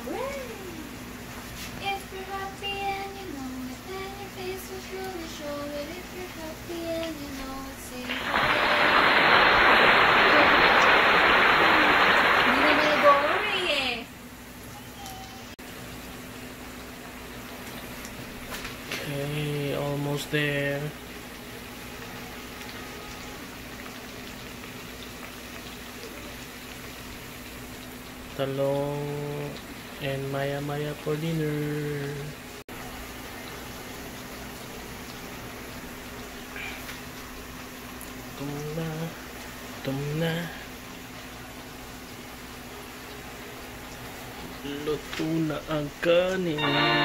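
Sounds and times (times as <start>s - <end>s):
slices frying in hot oil: 0.0s - 47.0s
high voice singing slow tune: 1.8s - 8.8s, 28.4s - 32.4s, 38.3s - 40.8s, 46.1s - 47.0s.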